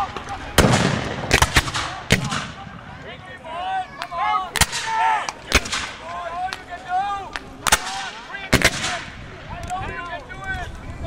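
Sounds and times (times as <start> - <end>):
musket shots cracking: 0.6 - 2.8, 4.6 - 4.9, 5.5 - 6.0, 7.6 - 9.2.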